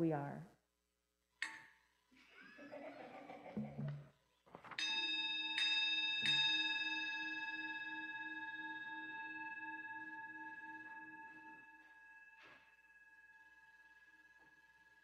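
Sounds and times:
singing bowl struck and ringing: 4.8s - 15.0s.

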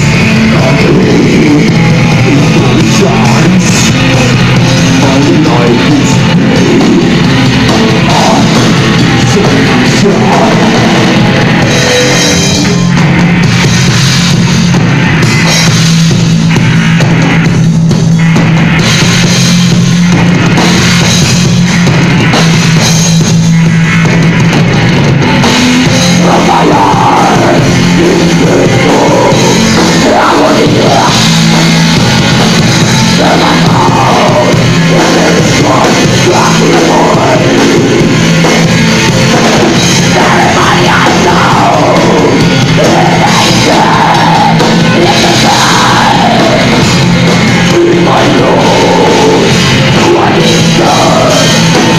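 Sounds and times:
doom metal band playing: 0.0s - 51.9s.

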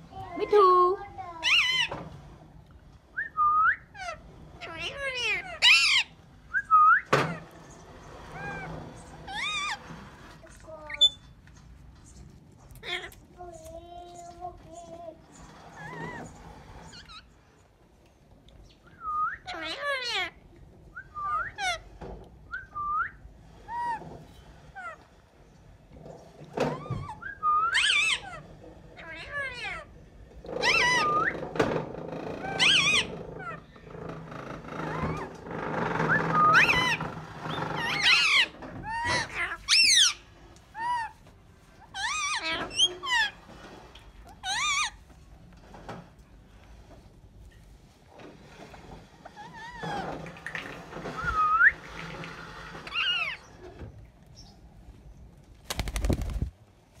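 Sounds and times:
parakeet calling: 4.0s - 6.2s, 36.2s - 40.2s.

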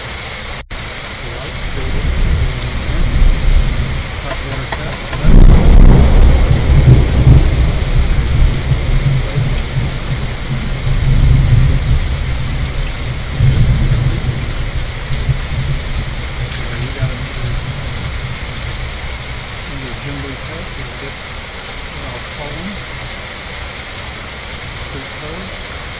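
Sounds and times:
steady rain: 0.0s - 25.9s
low thunder rumble: 0.7s - 23.3s.

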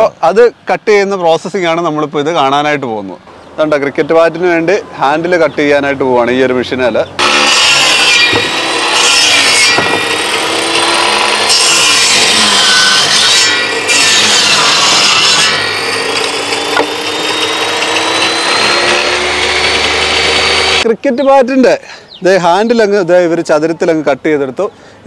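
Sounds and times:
power saw cutting wood: 7.2s - 20.9s.

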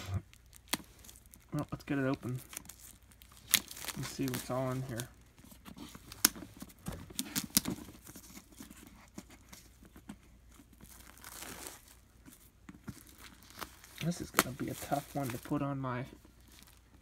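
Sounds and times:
plastic shrink wrap crinkling: 0.0s - 17.0s.

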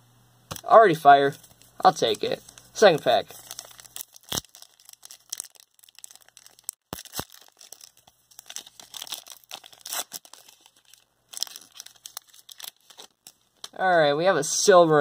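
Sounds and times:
foil wrapper crinkling and tearing: 1.4s - 13.8s.

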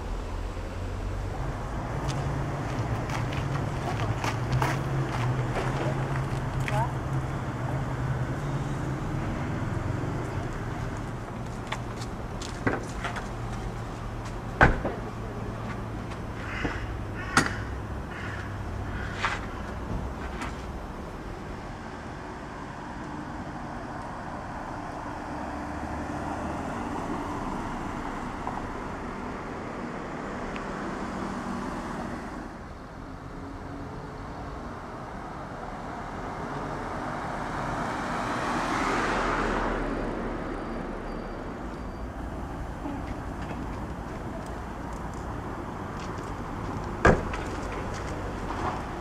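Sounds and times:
cars on the road: 0.0s - 49.0s
car passing close: 36.7s - 49.0s.

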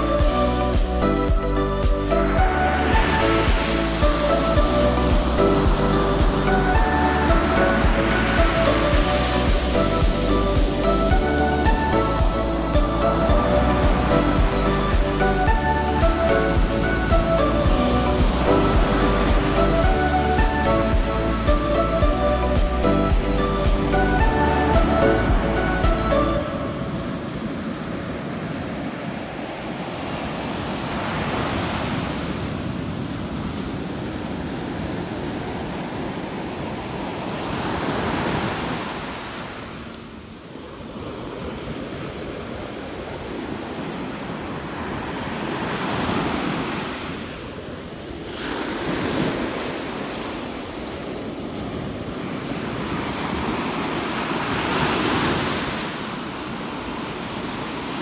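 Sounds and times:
wind on microphone: 0.0s - 39.0s
surf washing up sand: 0.0s - 58.0s.

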